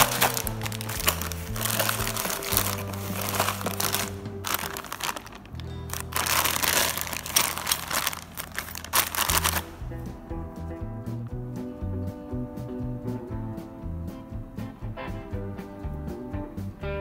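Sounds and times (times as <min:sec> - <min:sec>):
plastic bag crinkling: 0:00.0 - 0:09.8
background music: 0:00.0 - 0:17.0.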